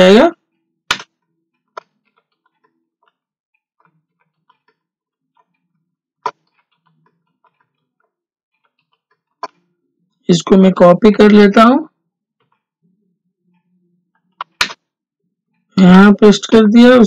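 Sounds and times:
keyboard typing: 0:00.9 - 0:09.6.

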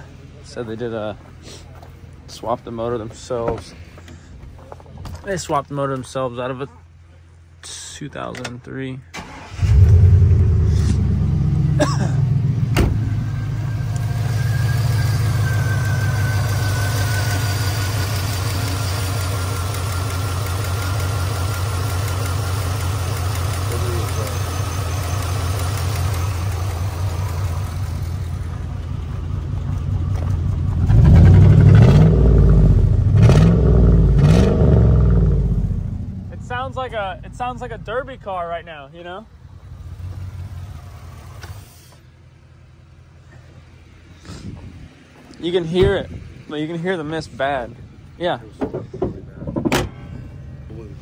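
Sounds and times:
engine revving: 0:09.2 - 0:28.5, 0:30.1 - 0:38.8
misfiring engine running rough: 0:09.6 - 0:41.8.

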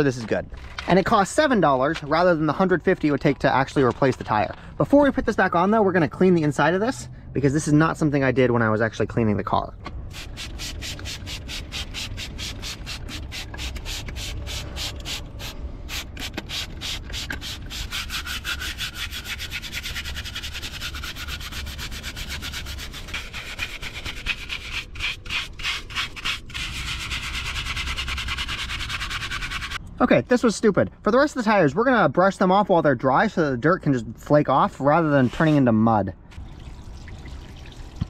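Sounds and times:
brush scrubbing wet tire: 0:10.1 - 0:29.8.

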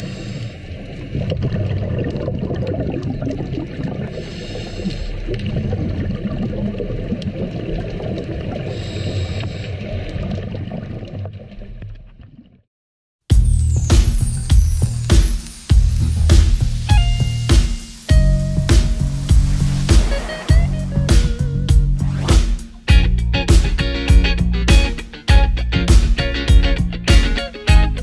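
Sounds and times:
diver inhaling through regulator: 0:00.0 - 0:00.7, 0:04.1 - 0:05.3, 0:08.7 - 0:09.9
bubbling of exhaled air: 0:00.0 - 0:11.3, 0:18.6 - 0:22.3.

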